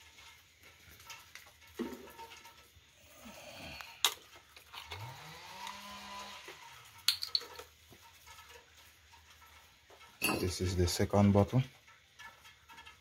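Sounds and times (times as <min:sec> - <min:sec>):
plastic bottles clacking on concrete: 0:00.0 - 0:02.8, 0:03.8 - 0:05.8, 0:06.9 - 0:08.7, 0:09.9 - 0:13.0.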